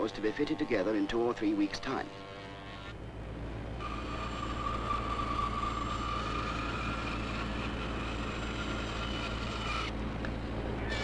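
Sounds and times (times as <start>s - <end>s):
spindle moulder cutting wood: 3.8s - 10.0s.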